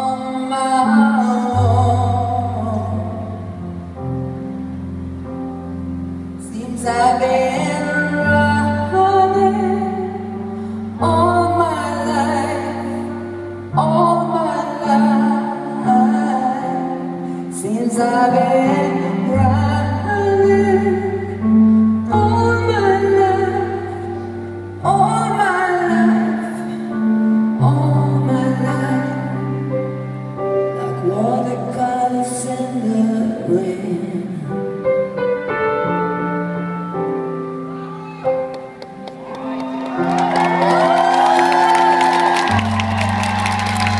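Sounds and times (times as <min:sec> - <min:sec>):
woman singing a slow ballad: 0:00.0 - 0:03.9, 0:06.4 - 0:34.8.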